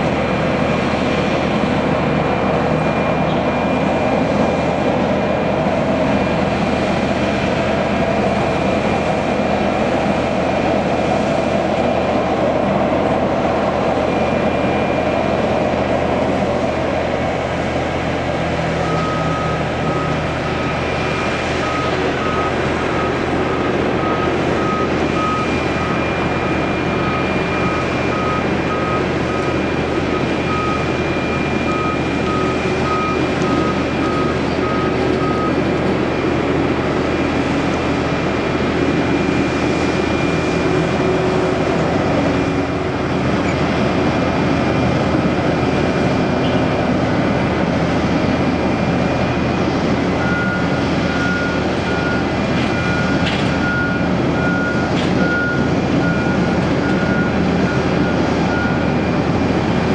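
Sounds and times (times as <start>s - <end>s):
jet engine roar: 0.0s - 59.9s
beeping alarm: 18.8s - 38.1s, 38.9s - 42.7s, 50.1s - 59.4s.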